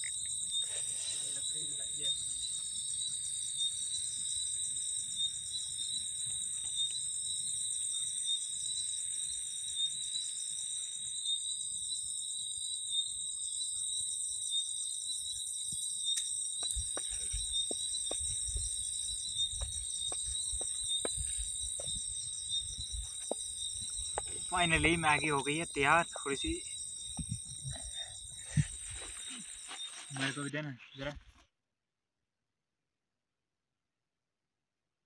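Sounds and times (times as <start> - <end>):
crickets chirping: 0.0 - 31.3.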